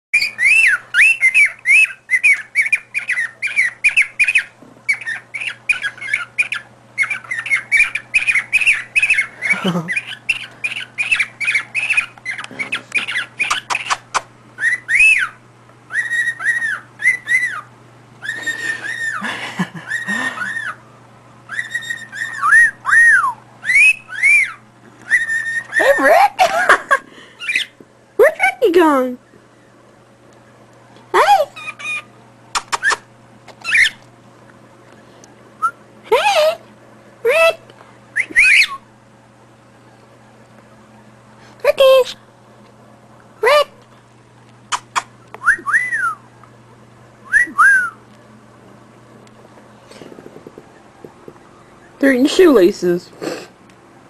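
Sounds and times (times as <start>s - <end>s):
cockatiel whistling: 0.2s - 14.0s, 14.6s - 19.2s, 21.5s - 26.0s, 33.6s - 34.0s, 38.2s - 38.9s, 44.9s - 46.3s, 47.2s - 48.0s.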